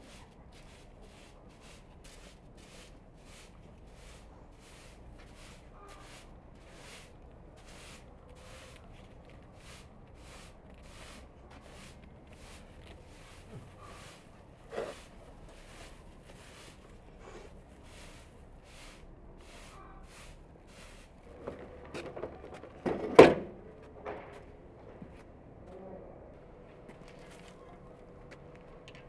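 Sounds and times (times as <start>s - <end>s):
straw broom sweeping: 0.0s - 21.7s.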